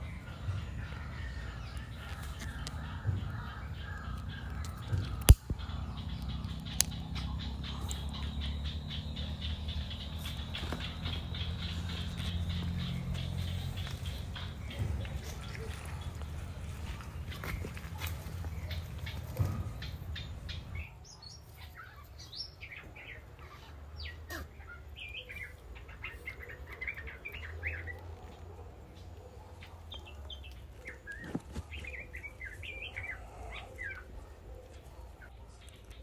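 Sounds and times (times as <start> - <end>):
birds chirping and calling: 0.0 - 36.0.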